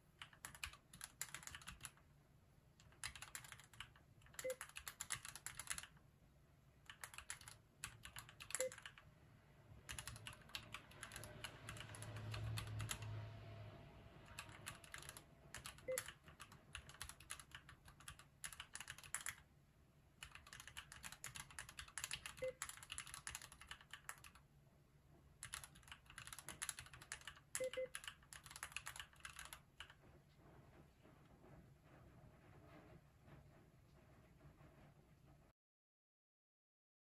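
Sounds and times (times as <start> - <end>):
mechanical keyboard typing: 0.1 - 2.0, 2.8 - 6.0, 6.8 - 9.1, 9.8 - 13.2, 14.2 - 19.5, 20.2 - 24.4, 25.4 - 30.0.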